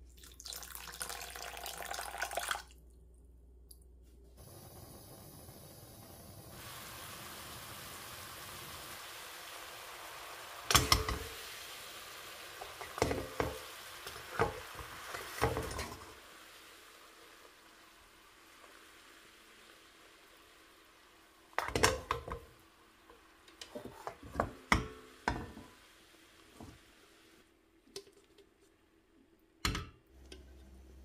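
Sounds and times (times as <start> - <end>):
water pouring onto sugar: 0.2 - 2.7
sugar syrup boiling hiss: 4.4 - 27.6.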